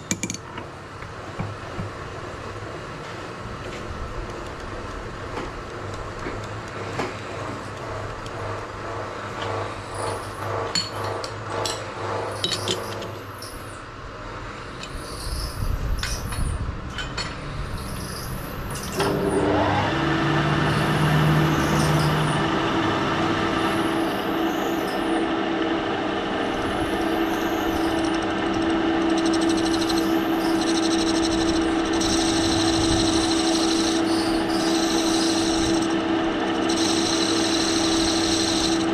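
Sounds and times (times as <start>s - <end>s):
lathe running with a hum: 4.7s - 13.8s, 17.6s - 38.9s.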